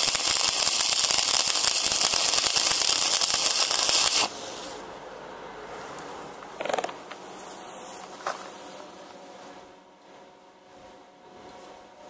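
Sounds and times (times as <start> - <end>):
welding arc crackling hiss: 0.0 - 4.9.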